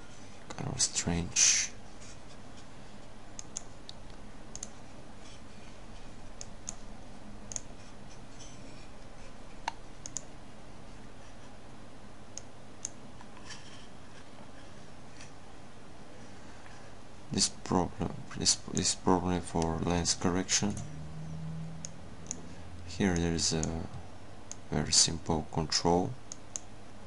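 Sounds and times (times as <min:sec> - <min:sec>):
faint steady low hum: 0:00.0 - 0:27.0
computer mouse clicking: 0:03.4 - 0:04.8, 0:06.4 - 0:06.8, 0:07.5 - 0:07.8, 0:09.6 - 0:10.3, 0:23.1 - 0:23.8.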